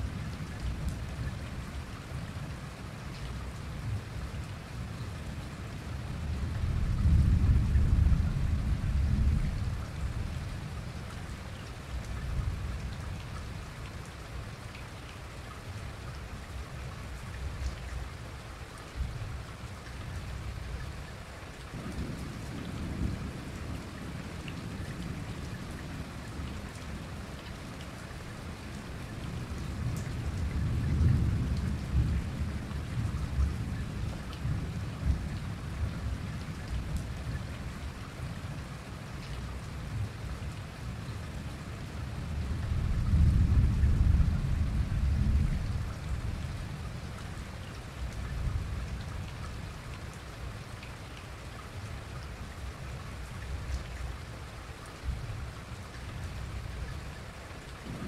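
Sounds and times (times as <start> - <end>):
steady rain: 0.0 - 58.0
rolling thunder: 42.6 - 46.5.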